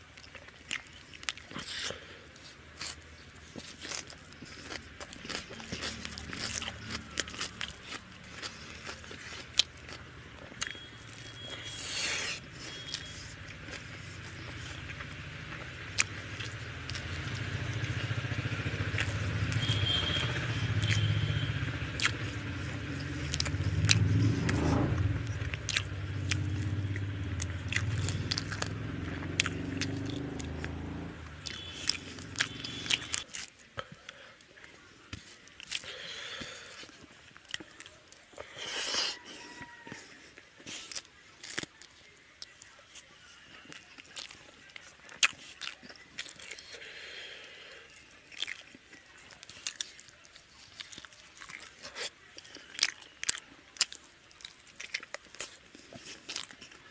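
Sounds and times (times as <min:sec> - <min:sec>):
chewing: 0:00.0 - 0:56.9
lip smacks: 0:27.4 - 0:33.5.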